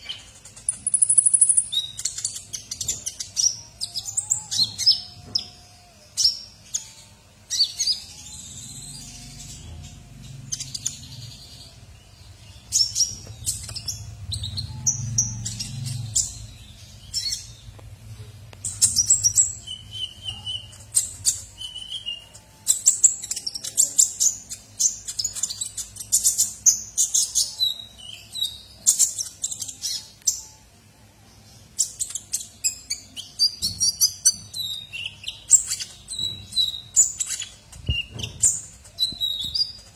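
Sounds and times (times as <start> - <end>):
sunbird chirping and twittering: 0.0 - 39.9
faint low rumble: 7.9 - 23.6.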